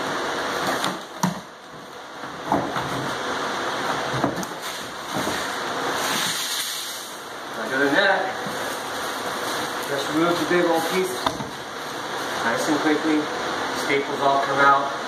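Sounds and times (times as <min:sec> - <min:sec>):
steady hiss: 0:00.0 - 0:15.0
board being pried up: 0:03.9 - 0:06.6.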